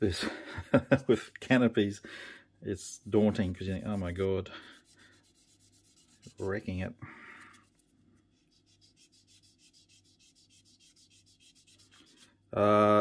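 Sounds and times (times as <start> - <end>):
sanding stick rubbing on plastic: 3.7 - 6.8, 7.7 - 12.3.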